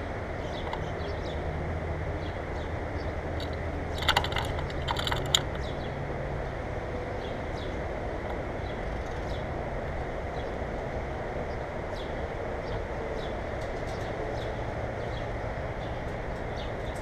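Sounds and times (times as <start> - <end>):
bird clicking on wire feeder: 3.4 - 5.7.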